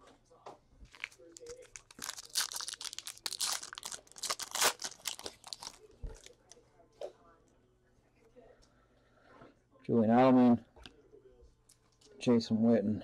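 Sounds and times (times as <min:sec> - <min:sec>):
foil wrapper tearing and crinkling: 0:00.9 - 0:06.4.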